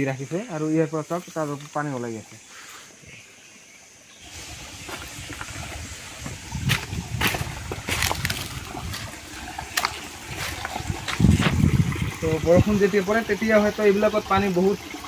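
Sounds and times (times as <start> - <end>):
water trickling: 3.4 - 15.0
leaves crackling: 4.2 - 11.6
footsteps on stones and leaves: 4.3 - 11.7.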